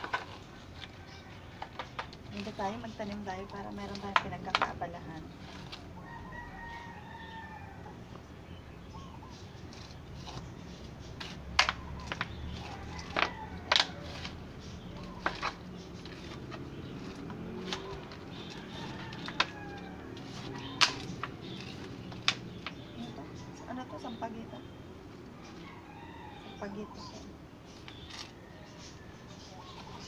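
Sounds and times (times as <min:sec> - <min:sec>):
plastic scoop scraping plastic pot: 0:00.0 - 0:06.0, 0:09.6 - 0:22.9.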